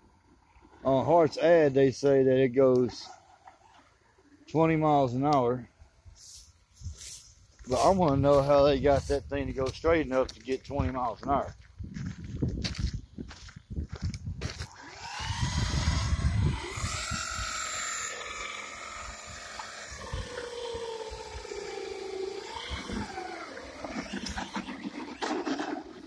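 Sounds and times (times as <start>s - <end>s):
electric motor whining: 14.5s - 26.0s.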